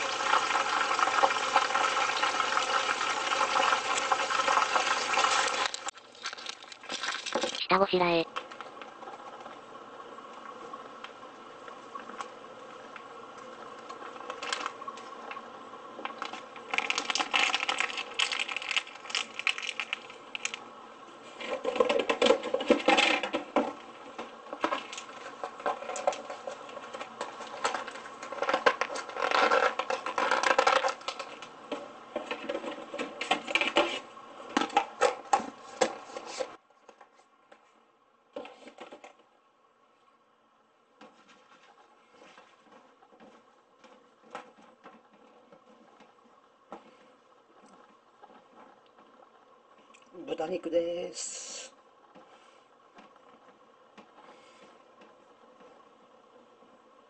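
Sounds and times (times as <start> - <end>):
steady hum: 3.2 - 57.0
plastic bag crinkling: 5.2 - 7.8, 16.0 - 20.6, 27.4 - 31.4.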